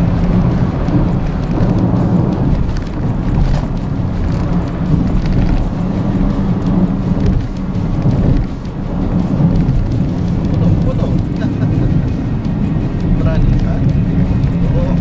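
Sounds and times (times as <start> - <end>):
tyre and wind noise in car: 0.0 - 15.0.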